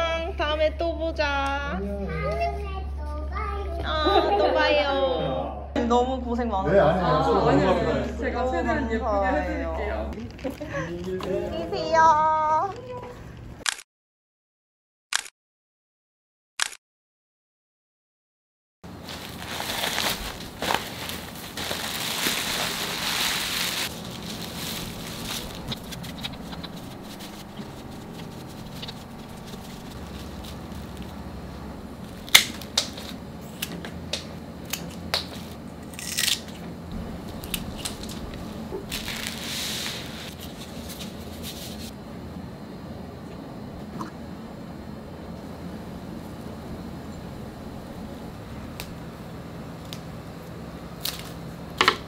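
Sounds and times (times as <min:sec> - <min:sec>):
leaves and stalks rustling tearing: 0:19.0 - 0:33.7, 0:34.6 - 0:36.6, 0:37.2 - 0:41.9, 0:51.0 - 0:51.5
shears snipping: 0:24.2 - 0:31.1, 0:32.0 - 0:36.6.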